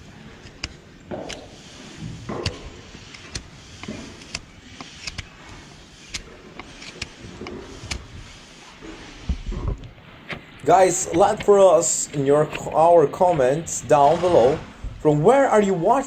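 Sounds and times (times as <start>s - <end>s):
knife scraping hoof: 0.0s - 9.6s.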